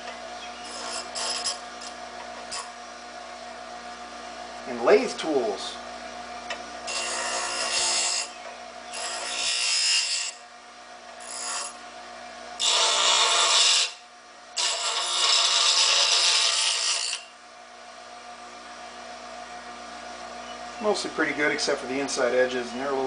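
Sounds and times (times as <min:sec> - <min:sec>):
bench grinder motor humming: 0:00.0 - 0:02.8, 0:06.5 - 0:10.4, 0:11.1 - 0:11.8, 0:12.6 - 0:14.0, 0:14.6 - 0:17.3
metal grinding on wheel: 0:00.6 - 0:02.7, 0:06.9 - 0:08.3, 0:08.9 - 0:10.4, 0:11.2 - 0:11.8, 0:12.6 - 0:14.0, 0:14.6 - 0:17.3.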